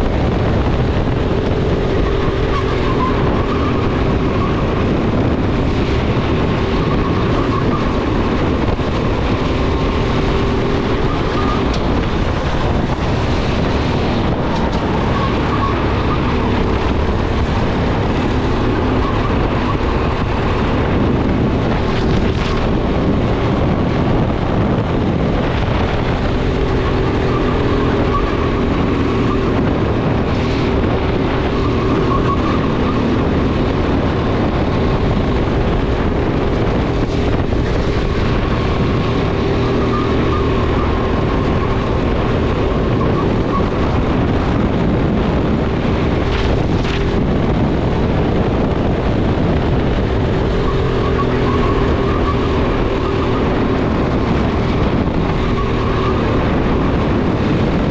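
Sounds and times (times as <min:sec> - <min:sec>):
rush of noise: 0:00.0 - 0:57.9.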